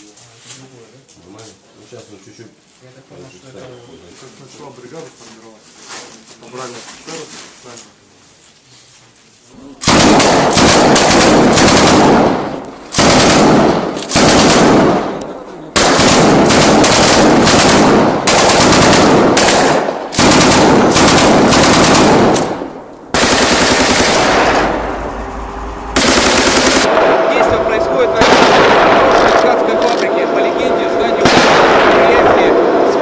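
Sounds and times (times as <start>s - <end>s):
automatic gunfire bursts: 9.8s - 15.2s, 15.8s - 24.8s, 26.0s - 27.3s, 28.2s - 30.1s, 31.2s - 32.8s.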